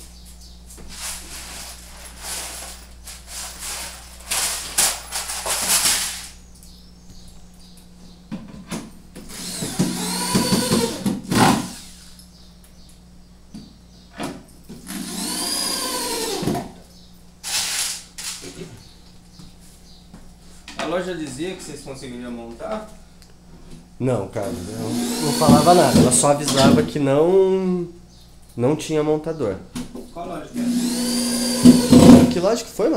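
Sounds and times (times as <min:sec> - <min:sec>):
knocking and scuffing: 0:00.3 - 0:06.1
electric drill driving into wood: 0:09.3 - 0:12.0, 0:14.8 - 0:16.6, 0:24.7 - 0:26.8, 0:30.6 - 0:32.3.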